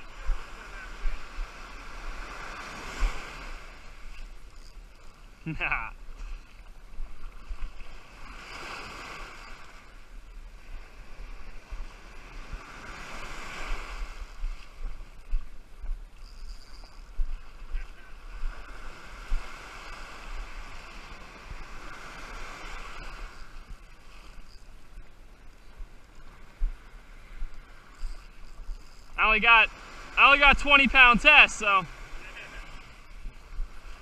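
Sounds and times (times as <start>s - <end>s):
ocean surf breaking: 0.0s - 4.1s, 7.4s - 14.6s, 17.8s - 24.5s, 28.9s - 34.0s
wind buffeting microphone: 6.0s - 30.2s, 31.9s - 34.0s.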